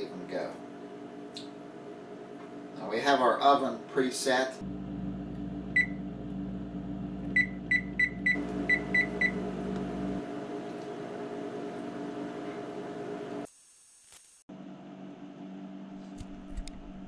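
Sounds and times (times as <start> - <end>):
steady low hum: 0.0 - 13.4
oven control panel beeping: 5.7 - 6.0, 7.3 - 9.9.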